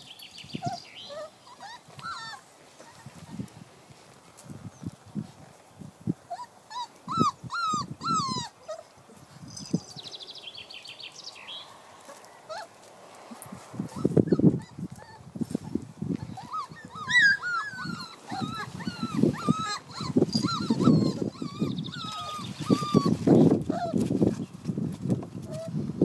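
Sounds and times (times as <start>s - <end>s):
puppies whining and yipping: 0.1s - 3.5s, 6.2s - 9.9s, 12.0s - 24.6s, 25.4s - 25.9s.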